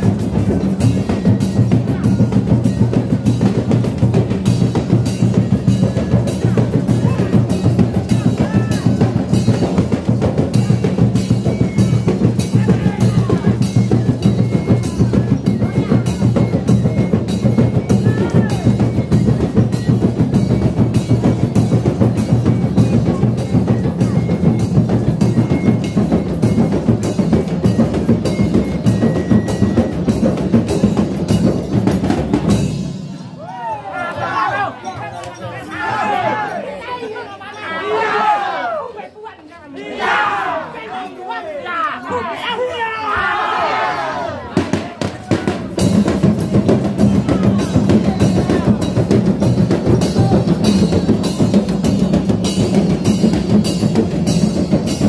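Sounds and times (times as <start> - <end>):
frame drums beaten by hand: 0.0 - 33.2, 44.6 - 55.0.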